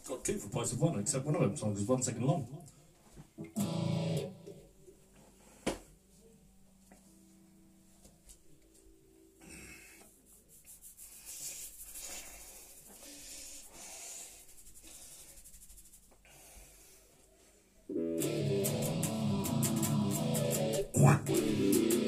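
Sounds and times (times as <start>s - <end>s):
electric guitar: 3.4s - 4.8s, 17.9s - 22.0s.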